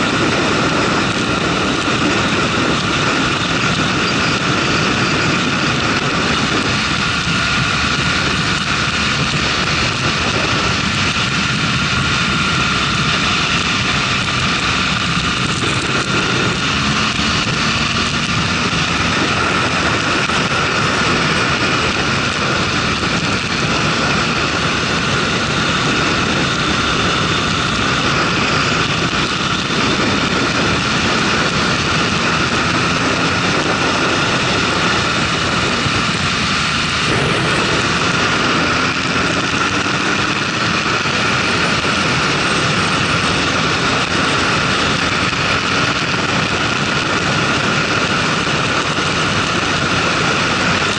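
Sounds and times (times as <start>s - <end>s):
motorcycle engine drone: 0.0s - 50.9s
wind noise: 0.0s - 50.9s.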